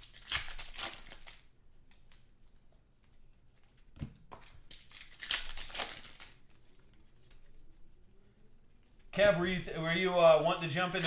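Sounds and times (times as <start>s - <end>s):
foil pack tearing: 10.5s - 11.0s.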